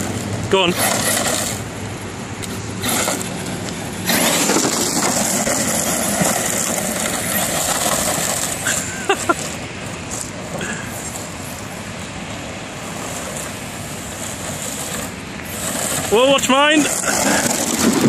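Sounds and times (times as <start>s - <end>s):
tyres churning gravel: 0.0s - 18.0s.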